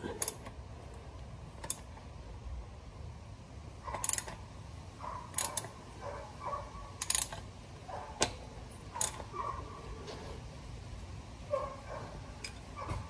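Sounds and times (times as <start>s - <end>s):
ratchet wrench clicking: 0.2s - 0.5s, 1.6s - 2.0s, 3.9s - 4.4s, 5.3s - 5.8s, 7.0s - 7.5s, 9.0s - 9.3s.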